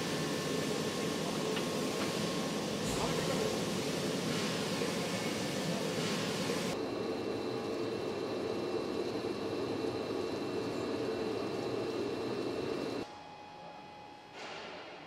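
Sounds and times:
hiss: 0.0 - 6.8
faint high whines: 0.0 - 14.1
machine and ventilation hum: 0.0 - 15.0.

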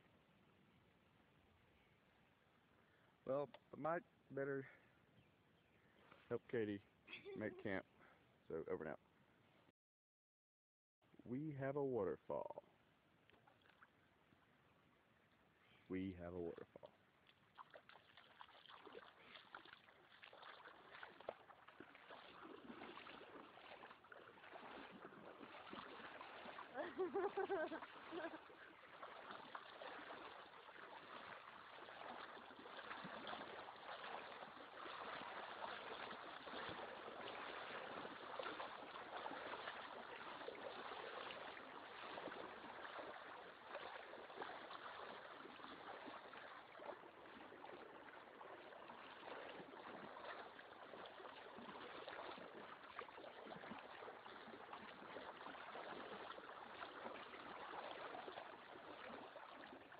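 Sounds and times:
small waterfall trickling and splashing: 16.7 - 59.9.

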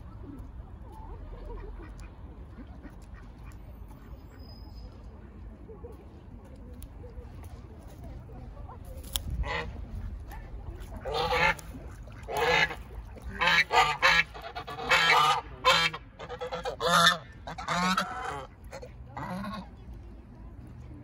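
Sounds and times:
geese honking: 11.0 - 19.8.

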